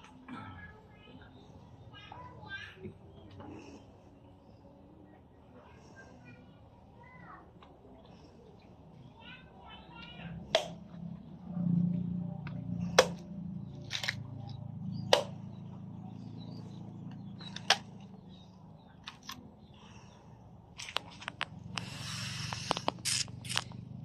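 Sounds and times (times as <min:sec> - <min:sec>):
machete chopping coconuts: 0:10.5 - 0:10.9, 0:12.9 - 0:13.3, 0:15.0 - 0:15.4.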